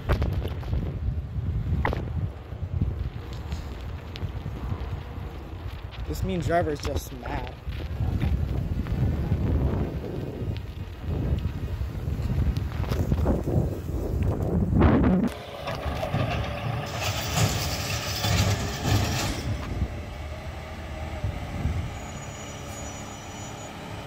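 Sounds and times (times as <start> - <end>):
wind rumbling on microphone: 0.0 - 23.0
garbage truck engine hum: 15.2 - 24.0.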